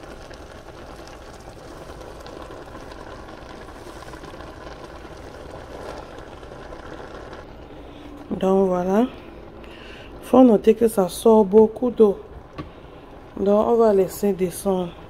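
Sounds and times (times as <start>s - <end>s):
tiny crackles: 0.0s - 8.0s
pot simmering with bubbling hiss: 0.0s - 15.0s.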